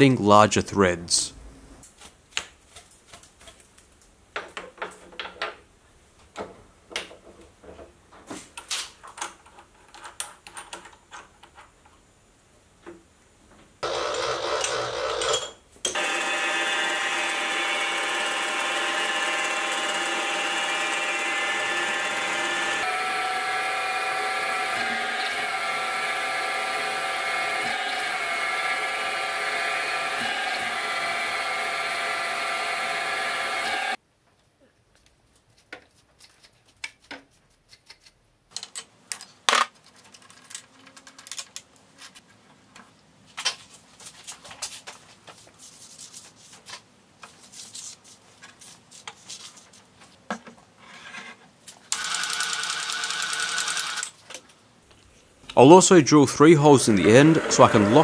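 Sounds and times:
milling machine motor whine: 16.0s - 34.0s, 56.9s - 58.0s
tools clicking and knocking on metal: 37.9s - 41.7s.

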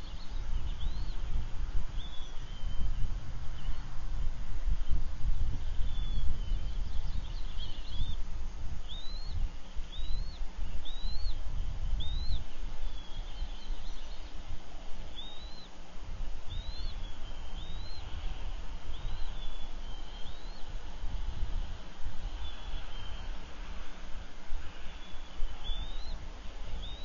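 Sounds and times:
eaglet peeping chirps: 0.0s - 3.8s, 5.6s - 8.2s, 8.8s - 14.4s, 15.0s - 20.9s, 22.1s - 23.4s, 24.8s - 27.0s.

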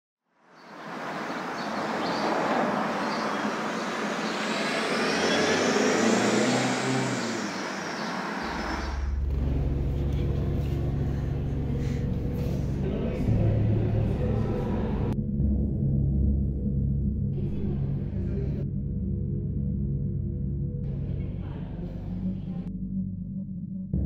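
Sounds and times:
city traffic road noise: 0.4s - 15.2s
low steady drone: 1.8s - 24.0s.

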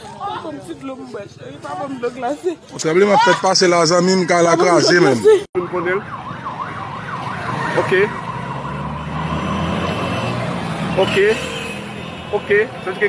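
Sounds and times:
siren yelping: 3.8s - 9.1s.

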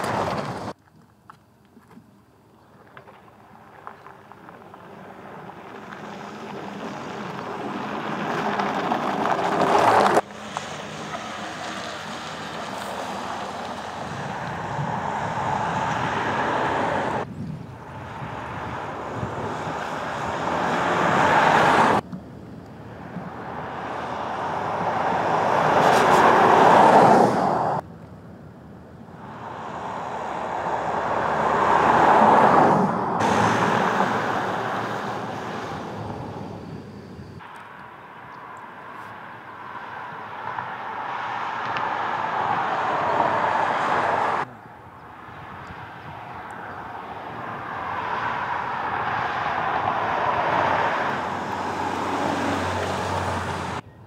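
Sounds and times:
car driving past: 29.2s - 53.8s.

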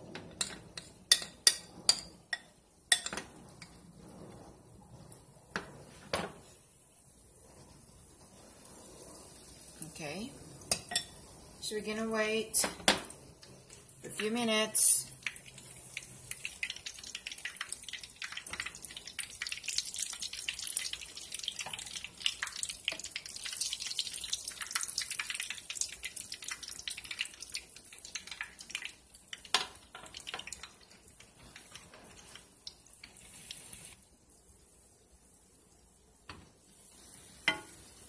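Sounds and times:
oil crackling and popping: 15.1s - 34.7s.

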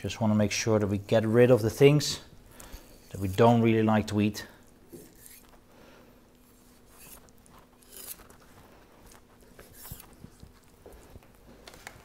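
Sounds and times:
knife scraping fish on board: 7.0s - 8.4s.

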